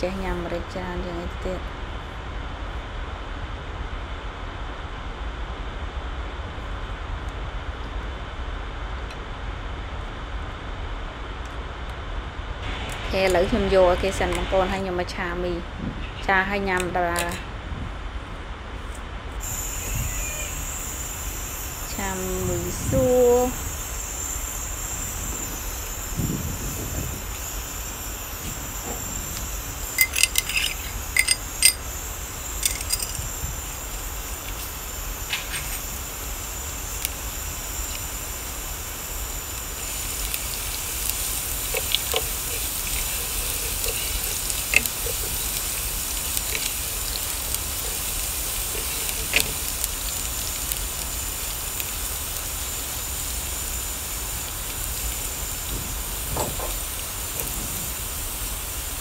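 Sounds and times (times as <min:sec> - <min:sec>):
garlic sizzling in hot oil: 0:19.4 - 0:59.0
sharp clicks: 0:32.5 - 0:33.2.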